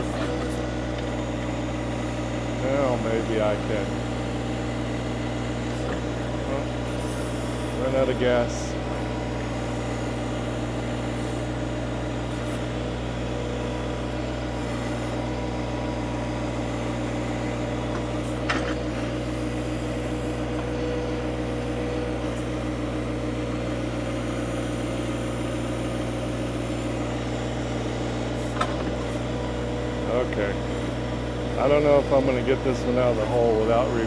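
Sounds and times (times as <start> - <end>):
tractor diesel engine running: 0.0 - 34.0.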